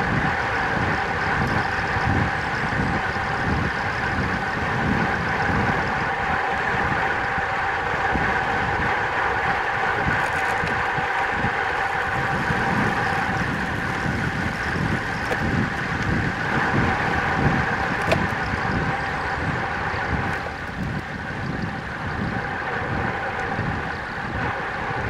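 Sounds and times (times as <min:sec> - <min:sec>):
steady hum: 0:00.0 - 0:25.0
wind buffeting microphone: 0:00.0 - 0:25.0.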